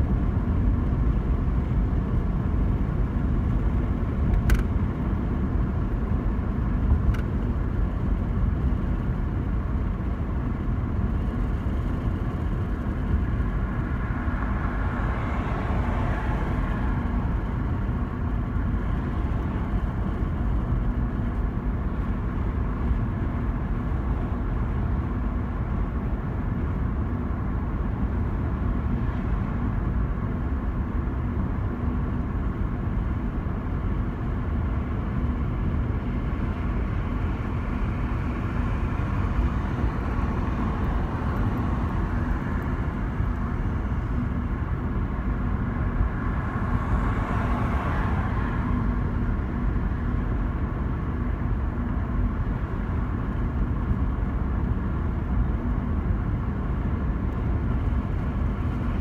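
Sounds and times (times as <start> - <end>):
road and engine rumble: 0.0 - 59.0.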